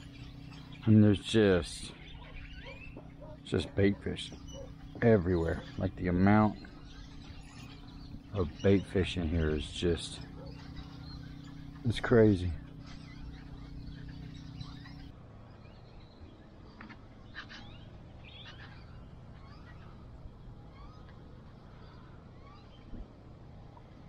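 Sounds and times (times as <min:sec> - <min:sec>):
bird chirps and calls: 0:00.0 - 0:16.3, 0:17.3 - 0:20.0
low steady hum: 0:00.0 - 0:24.0.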